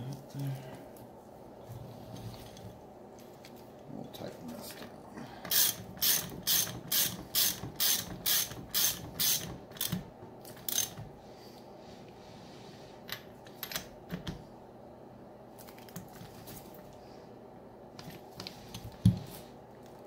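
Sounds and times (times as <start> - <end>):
socket ratchet clicking: 5.5 - 10.0.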